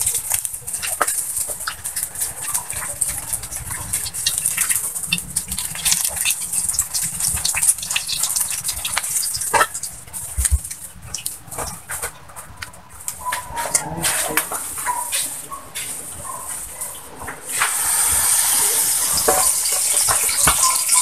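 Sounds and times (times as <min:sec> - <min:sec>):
oil sizzling in a wok: 0:00.0 - 0:10.4, 0:17.5 - 0:21.0.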